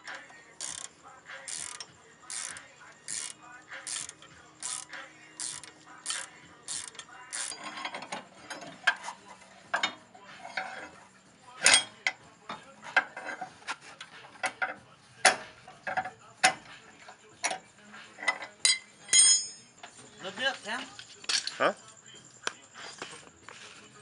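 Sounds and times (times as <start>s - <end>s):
socket ratchet clicking: 0.6s - 0.9s, 1.5s - 7.6s
metal clinks: 18.4s - 19.7s.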